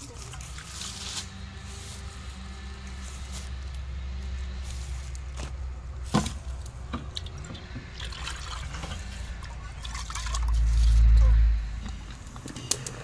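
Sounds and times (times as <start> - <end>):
water dripping and trickling: 6.6 - 11.1.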